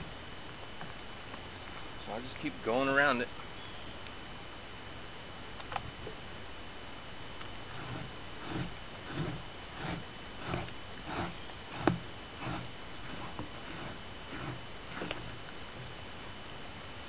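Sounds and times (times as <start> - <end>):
scraper scraping hide: 7.7 - 16.0.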